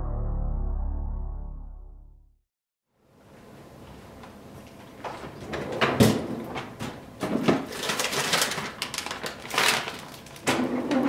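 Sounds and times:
freezer drawer sliding open: 5.4s - 7.7s
frozen packages knocking: 7.2s - 10.6s
plastic bag rustling: 7.3s - 10.7s.

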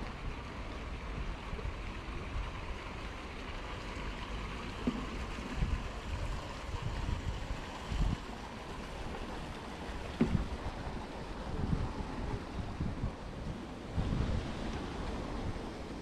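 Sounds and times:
steady outdoor hiss: 0.0s - 16.0s
wind gusts buffeting microphone: 4.6s - 16.0s.

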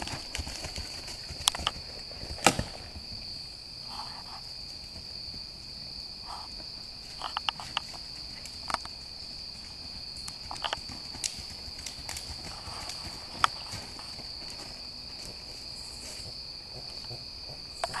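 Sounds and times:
high-pitched insect chorus: 0.0s - 18.0s
horse hooves knocking: 16.2s - 18.0s.

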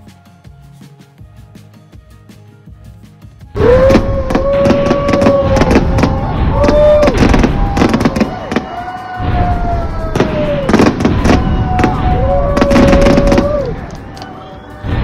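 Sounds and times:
fireworks bangs and crackles: 3.6s - 15.0s.

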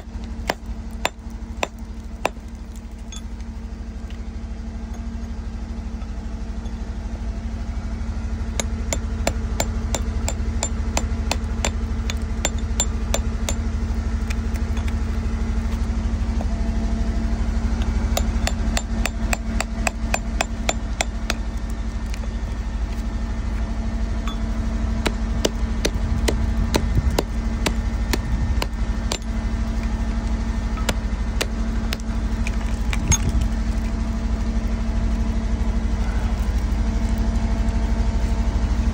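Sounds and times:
low motor hum: 0.0s - 38.9s
chisel and hammer tapping rock: 8.6s - 13.6s, 18.2s - 21.4s.

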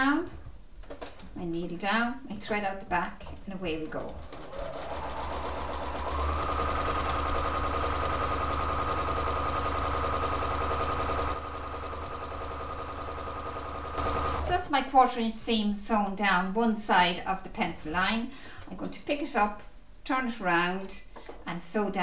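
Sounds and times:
sewing machine motor whine: 4.0s - 14.6s.

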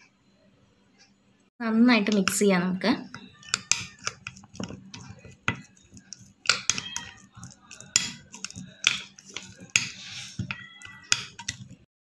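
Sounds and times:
spoon scraping glass bowl: 3.0s - 11.9s
spoon knocking bowl: 3.1s - 11.8s.

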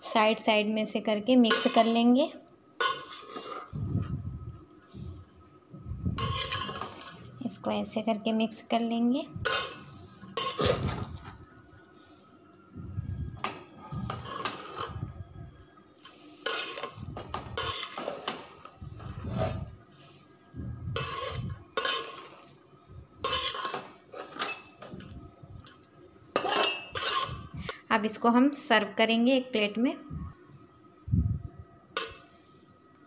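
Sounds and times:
spoon scraping a metal pot: 1.4s - 2.1s, 2.8s - 3.8s, 6.1s - 7.3s, 9.3s - 11.3s, 13.4s - 15.1s, 16.0s - 19.8s, 20.9s - 22.5s, 23.2s - 25.0s, 26.3s - 27.6s, 31.9s - 32.4s.

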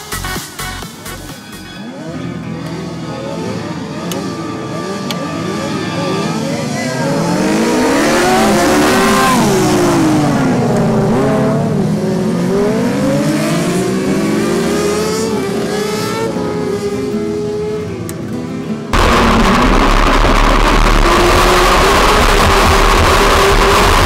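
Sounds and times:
racing mower engines: 0.8s - 24.0s.

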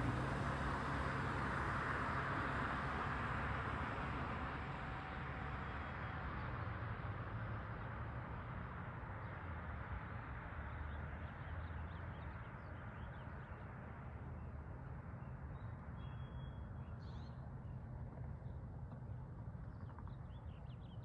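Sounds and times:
low outdoor rumble: 0.0s - 21.0s
small birds chirping: 15.2s - 21.0s.

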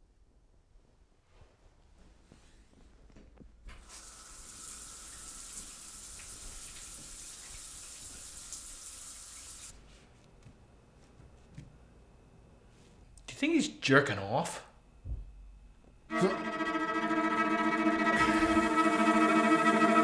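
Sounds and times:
shower water spraying: 3.8s - 9.7s.

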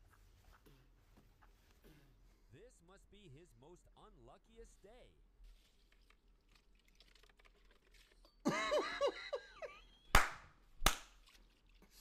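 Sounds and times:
man laughing: 8.5s - 9.9s
hands clapping: 10.1s - 11.2s.

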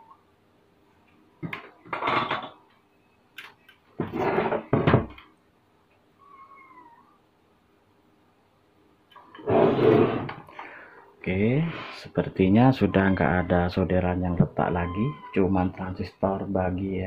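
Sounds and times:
cat meowing faintly: 6.2s - 7.2s, 12.5s - 16.3s.

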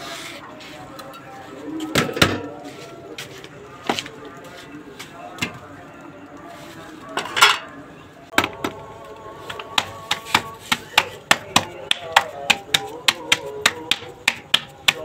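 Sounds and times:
faint background music: 0.0s - 15.0s
dough slapped between palms: 9.7s - 15.0s.

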